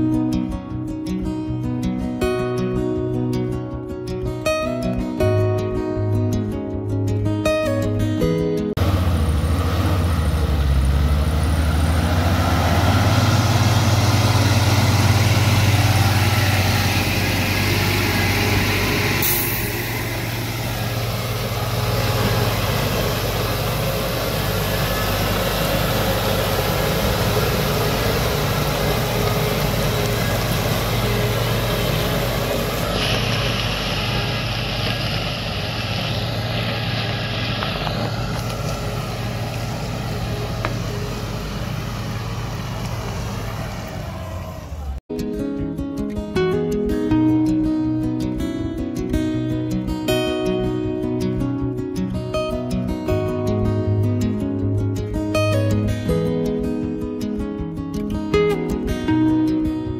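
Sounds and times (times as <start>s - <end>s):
bus diesel engine drone: 8.7s - 45.1s
short sharp hiss: 17.8s - 24.1s.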